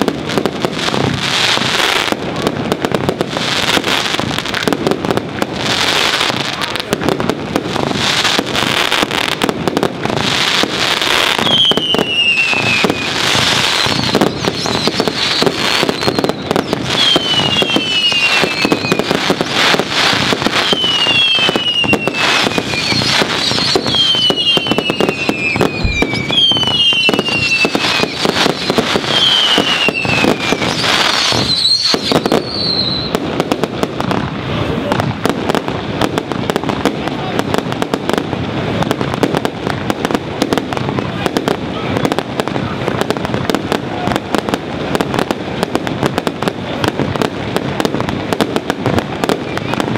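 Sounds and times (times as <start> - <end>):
firework bangs and crackling: 0.0 - 49.9
falling firework whistles: 10.3 - 33.2.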